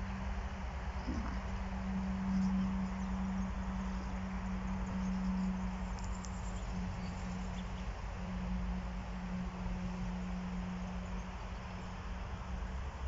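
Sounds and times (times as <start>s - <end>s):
bee buzzing: 0.8s - 3.2s.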